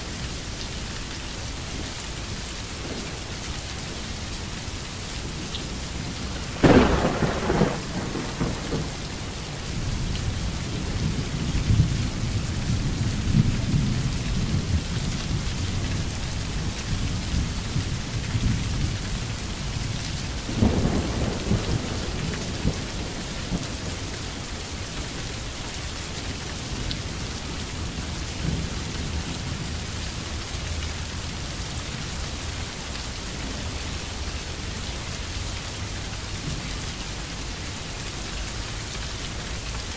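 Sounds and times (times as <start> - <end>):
steady rainfall: 0.0 - 39.9
thunder clap and rumble: 5.3 - 15.8, 20.1 - 24.4.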